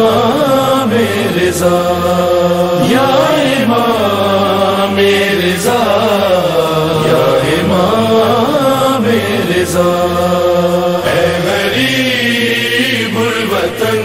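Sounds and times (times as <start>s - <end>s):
person chanting long held notes: 0.0s - 14.0s.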